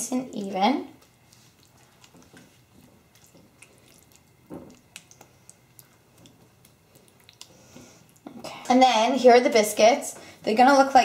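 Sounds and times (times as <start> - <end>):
wet squishing of filling: 1.0 - 8.4.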